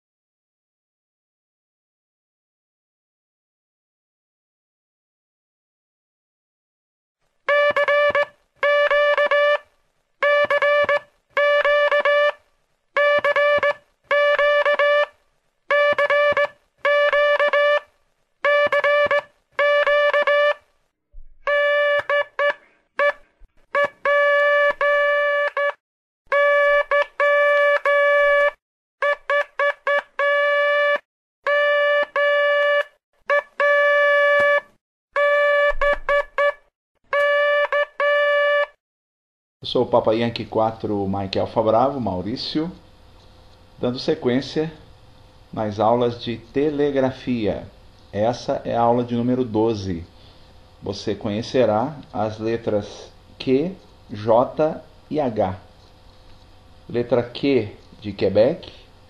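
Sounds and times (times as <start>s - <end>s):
morse code beeps: 7.5s - 9.6s, 10.2s - 12.4s, 13.0s - 15.1s, 15.7s - 17.8s, 18.5s - 20.6s, 21.5s - 23.2s, 23.8s - 36.6s, 37.2s - 38.7s.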